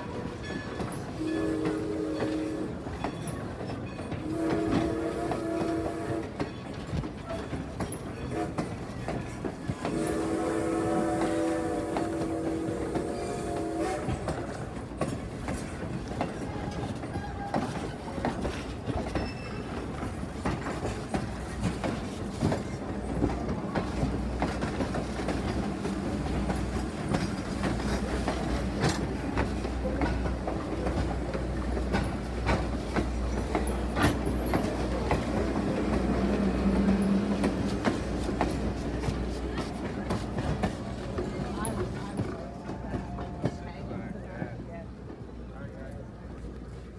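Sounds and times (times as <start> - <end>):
train wheels clicking over rail joints: 0.0 - 45.4
train rumble: 0.0 - 46.9
steam locomotive whistle: 1.1 - 2.9, 4.2 - 6.5, 8.3 - 8.7, 9.8 - 14.6.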